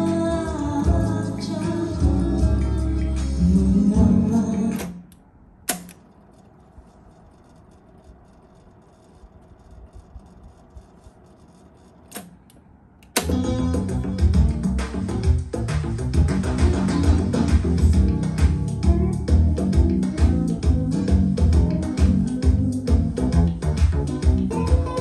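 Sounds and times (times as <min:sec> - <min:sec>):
music from cassette deck: 0:00.0 - 0:05.1, 0:13.1 - 0:25.0
cassette transport key click: 0:04.8 - 0:06.0
tape hiss with faint ticks: 0:04.8 - 0:13.3.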